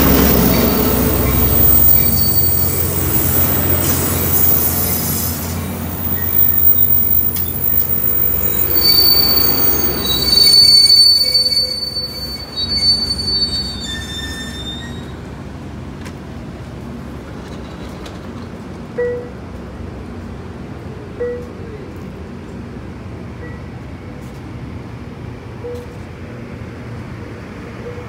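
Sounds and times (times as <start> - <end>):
train wheels squealing: 0.0 - 15.2
train rolling rumble: 0.0 - 28.0.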